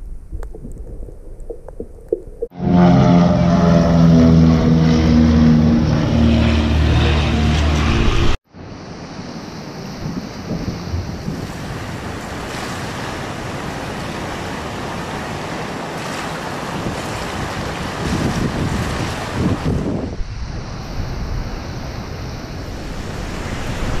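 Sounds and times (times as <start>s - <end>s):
water washing at shore: 8.9s - 24.0s
wind rushing on microphone: 9.8s - 24.0s.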